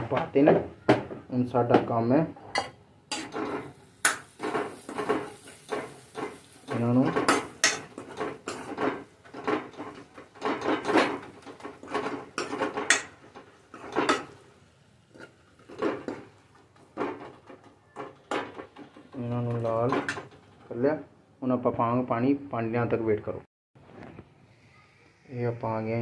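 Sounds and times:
onion mixture frying: 3.0s - 21.1s.

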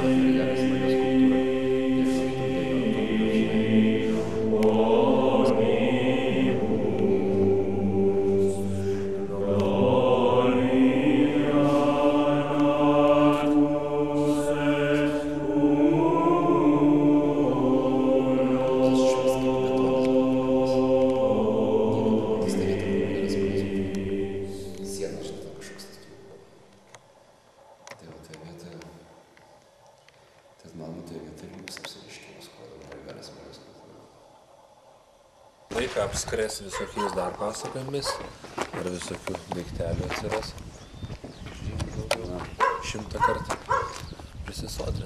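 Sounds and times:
chanted singing in long notes: 0.0s - 29.4s.

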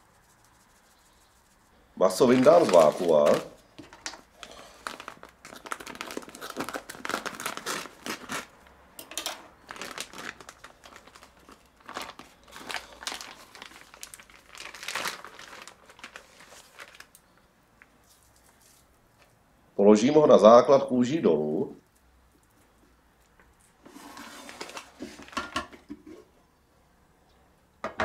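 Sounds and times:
plastic bag crinkling: 2.0s - 17.4s.

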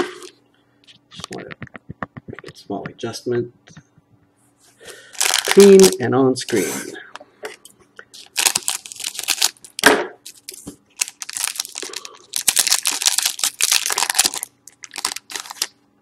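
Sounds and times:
foil wrapper crinkling and tearing: 5.0s - 6.0s, 8.2s - 15.8s.

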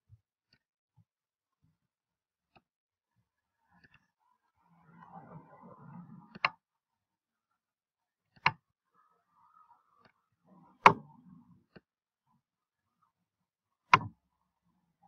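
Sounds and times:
computer mouse clicks: 6.3s - 6.6s.

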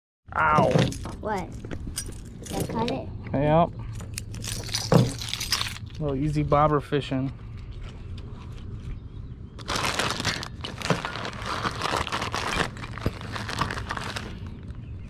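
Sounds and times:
plastic bag crinkling: 4.3s - 6.0s, 9.6s - 14.6s.

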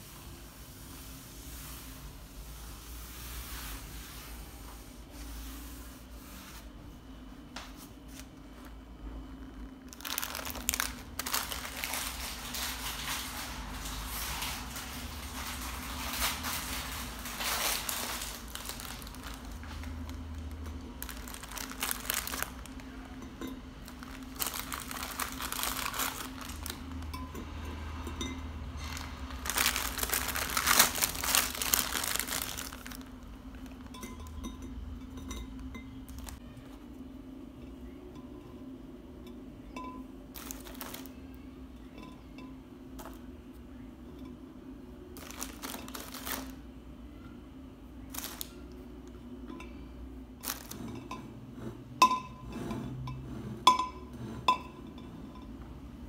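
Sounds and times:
steady low hum: 0.0s - 56.0s
crinkling and rustling: 9.4s - 27.2s, 28.7s - 34.2s, 35.6s - 36.4s, 40.3s - 41.2s, 45.2s - 46.6s, 48.1s - 48.7s, 50.4s - 51.2s.

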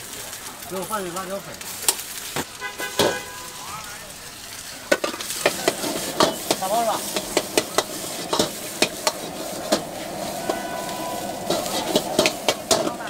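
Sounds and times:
rice sizzling in a wok: 0.0s - 13.0s
ladle clanking against wok: 4.9s - 13.0s.

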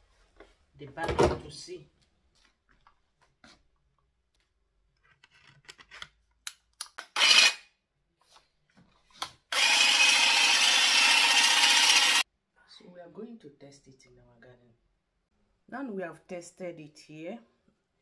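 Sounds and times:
plastic clicks and rubbing: 4.4s - 7.1s
hedge trimmer running: 9.5s - 12.2s.

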